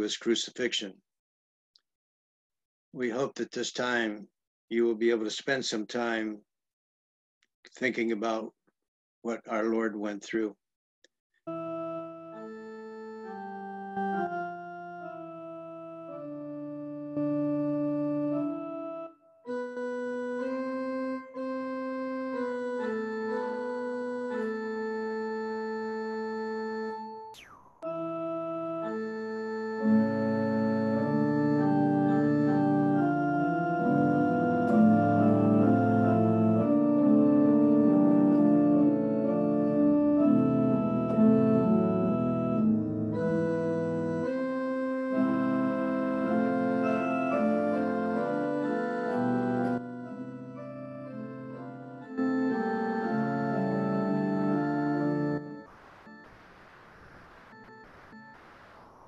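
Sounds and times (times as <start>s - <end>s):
organ chords on keyboard: 11.5s - 59.0s.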